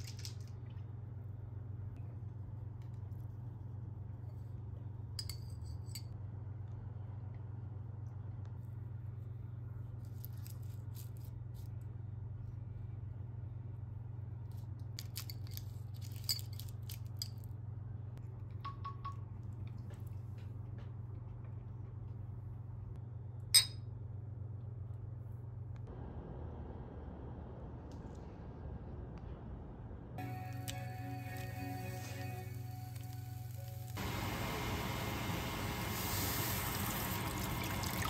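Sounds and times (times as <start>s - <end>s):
steady low hum: 0.0s - 38.0s.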